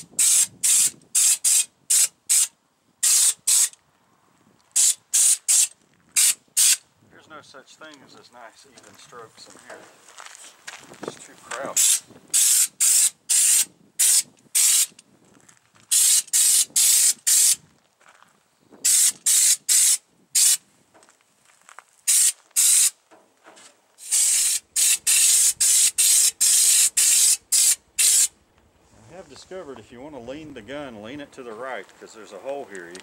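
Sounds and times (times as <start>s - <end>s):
spray gun hissing bursts: 0.0s - 3.7s, 11.8s - 14.9s, 15.9s - 17.6s, 18.8s - 20.6s, 22.1s - 23.0s, 24.0s - 28.3s.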